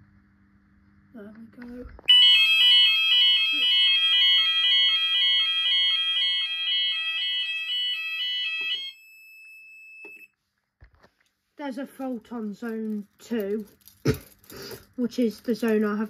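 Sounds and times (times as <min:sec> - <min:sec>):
two-tone fire alarm: 0:02.1 - 0:10.4.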